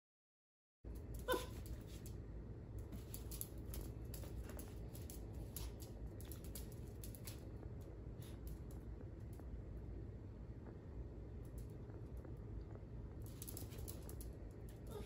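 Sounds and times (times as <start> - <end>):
steady low hum: 0.9 - 15.0
dog claws clicking on wood floor: 2.8 - 7.5, 13.2 - 15.0.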